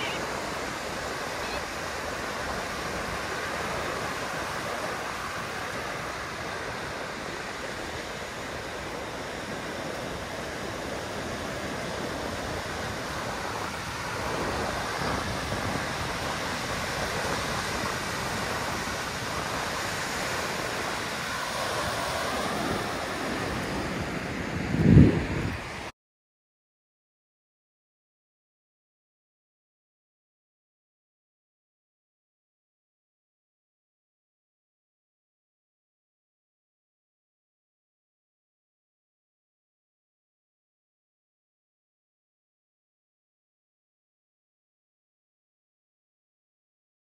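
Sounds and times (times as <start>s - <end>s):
ocean waves breaking: 0.0s - 25.9s.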